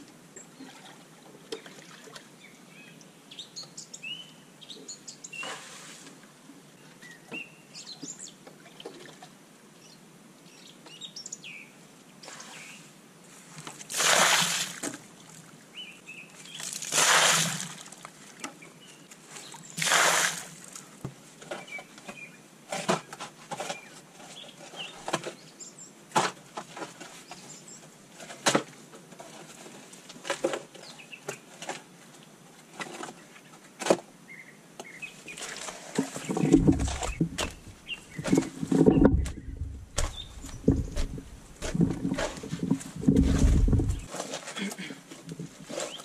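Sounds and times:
loose soil dumped out: 0:13.8 - 0:14.8, 0:16.6 - 0:17.9
birds chirping: 0:34.3 - 0:44.1
shovel blades scraping ground: 0:35.4 - 0:44.6
heavy digging thuds: 0:36.1 - 0:44.1.

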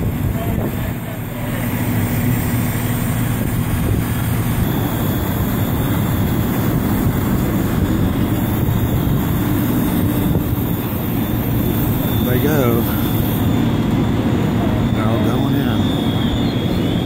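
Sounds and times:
diesel engine drone: 0:00.0 - 0:17.0.

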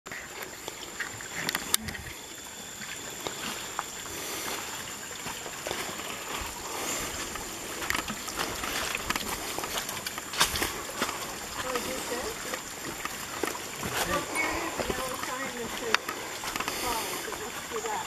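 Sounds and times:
trickling water: 0:00.1 - 0:18.0
footsteps on stones and leaves: 0:04.6 - 0:17.0.

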